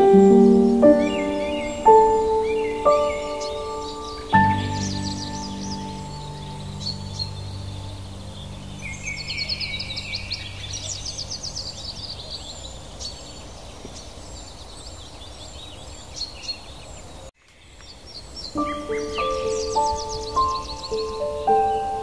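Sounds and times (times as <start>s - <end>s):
soft sustained music chord: 0.0s - 12.1s, 18.6s - 22.0s
bird trill: 0.0s - 13.3s, 18.4s - 22.0s
songbirds chirping and singing: 0.0s - 22.0s.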